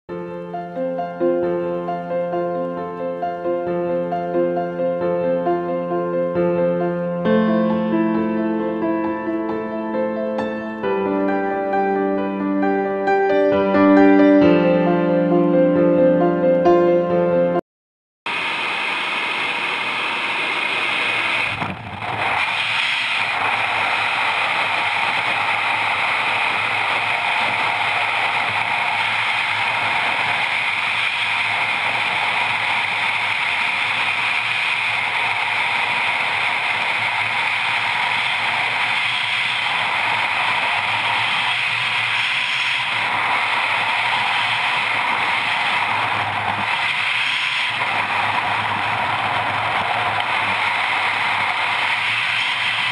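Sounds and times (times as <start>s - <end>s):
aircraft noise at open door: 18.3s - 52.9s
wind rushing on microphone: 20.5s - 52.9s.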